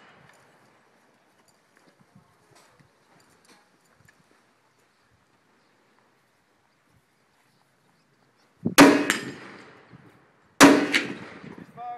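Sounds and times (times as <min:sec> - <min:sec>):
rifle shot: 0:08.8 - 0:09.9, 0:10.6 - 0:11.6.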